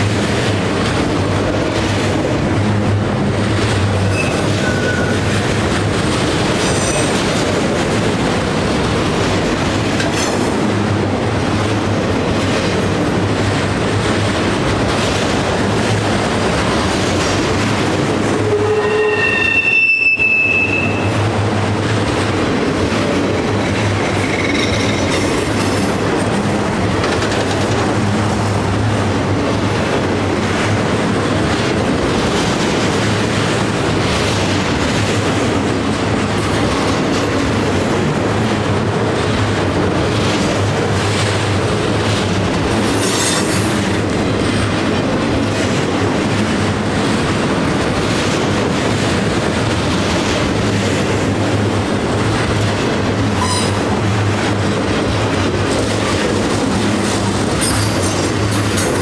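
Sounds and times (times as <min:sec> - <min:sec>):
steel wheels rumbling on rail: 0:00.0 - 0:59.0
high wheel squeal: 0:04.1 - 0:05.2, 0:18.4 - 0:21.2, 0:24.2 - 0:25.2, 0:53.4 - 0:53.8.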